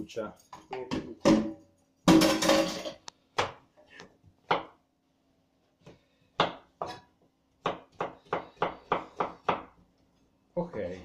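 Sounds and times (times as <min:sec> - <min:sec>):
knife chopping on cutting board: 0:07.6 - 0:09.7.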